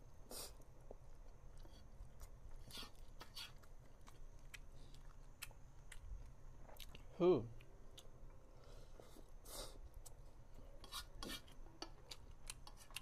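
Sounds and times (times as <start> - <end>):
close chewing with mouth clicks: 0.6 - 8.4, 11.3 - 13.0.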